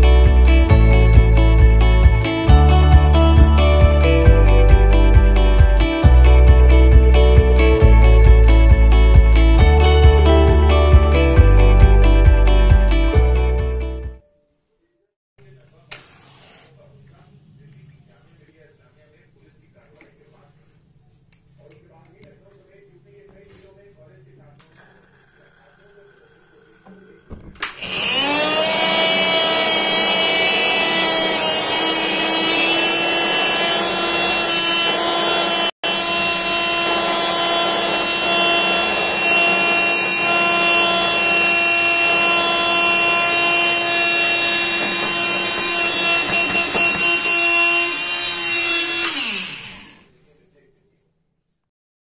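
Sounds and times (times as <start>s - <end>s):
small electric motor whining: 24.8s - 50.1s.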